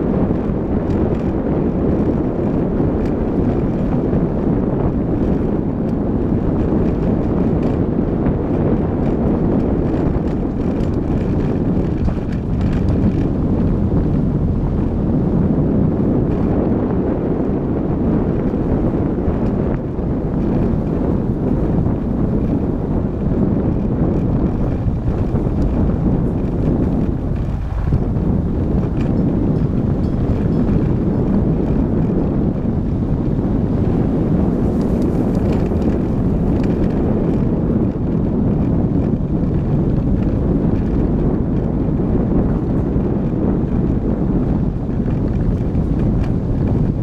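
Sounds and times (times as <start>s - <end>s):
car engine: 0.0s - 47.0s
wind buffeting microphone: 0.0s - 47.0s.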